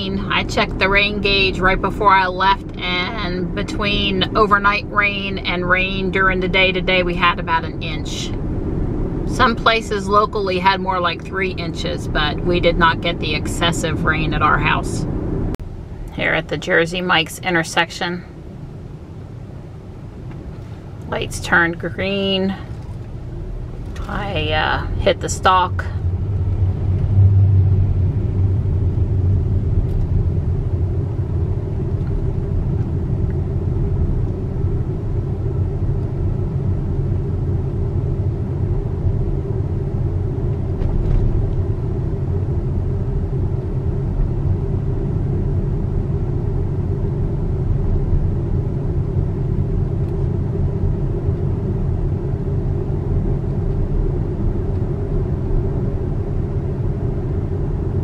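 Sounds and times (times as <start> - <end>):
tyre and road noise in car: 18.4 - 58.0.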